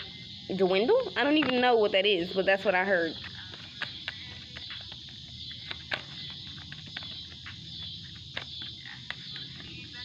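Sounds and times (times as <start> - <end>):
high insect drone: 0.0 - 10.0
cards being shuffled: 3.2 - 10.0.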